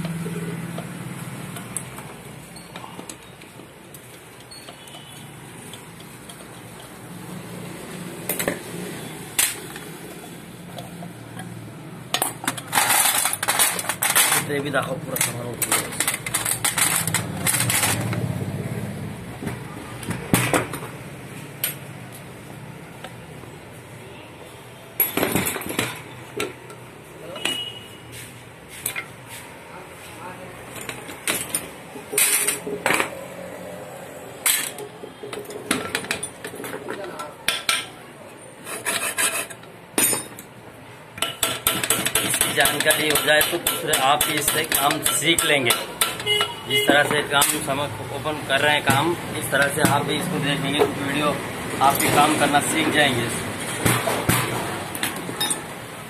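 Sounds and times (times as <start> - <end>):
metal parts clinking in tray: 12.1 - 18.2, 55.4 - 55.7
metal tools clinking on metal: 12.1 - 18.2, 30.7 - 33.0, 34.4 - 38.0, 39.2 - 40.6, 41.2 - 47.7, 55.0 - 55.7
sharp metallic knocks: 41.2 - 47.6.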